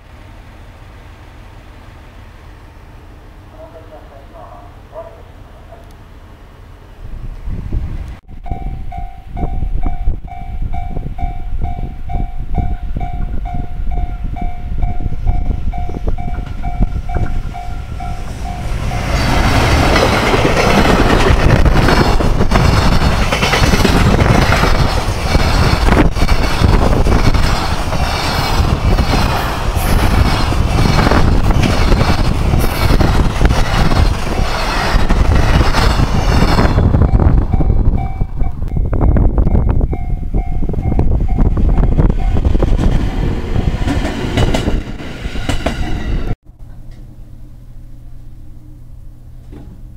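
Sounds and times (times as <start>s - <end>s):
freight train passing: 0.0s - 49.9s
level crossing warning bell: 8.3s - 19.2s
wheels clattering over rail joints: 16.2s - 35.7s.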